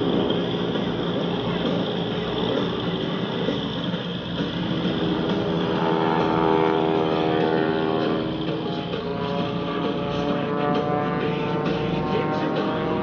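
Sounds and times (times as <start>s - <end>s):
music over loudspeakers: 0.0s - 13.0s
propeller plane engine droning: 0.0s - 13.0s.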